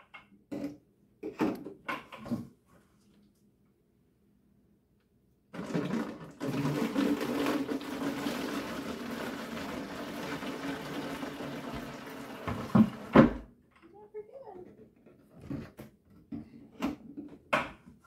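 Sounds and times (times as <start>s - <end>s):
liquid pouring into containers: 5.5s - 13.2s.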